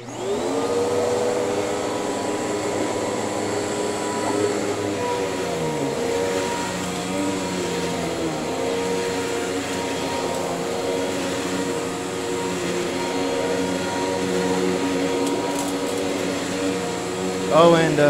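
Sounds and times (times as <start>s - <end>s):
upright vacuum cleaner running: 0.0s - 18.0s.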